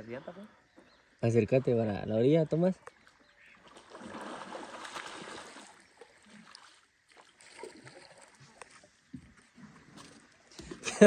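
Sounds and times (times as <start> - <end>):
river water sloshing: 0.0 - 11.0
small water splashes: 2.7 - 11.0.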